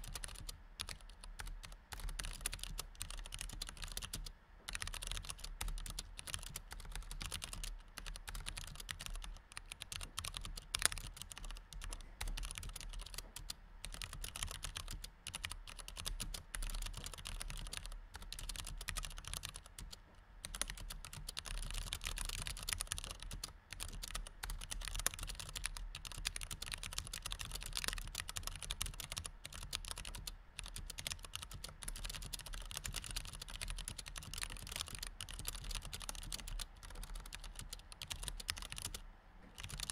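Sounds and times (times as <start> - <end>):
fast typing on keyboard: 0.0 - 39.9.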